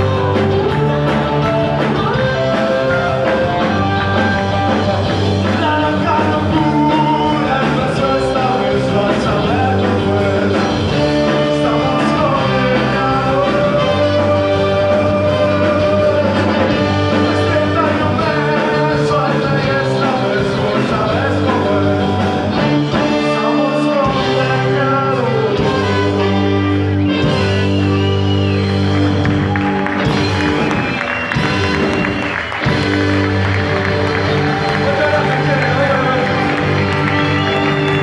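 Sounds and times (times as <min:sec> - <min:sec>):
saxophone: 0:00.0 - 0:06.0, 0:25.1 - 0:34.8, 0:35.8 - 0:38.0
drum kit: 0:00.0 - 0:38.0
electric guitar: 0:00.0 - 0:38.0
person singing: 0:01.9 - 0:26.7.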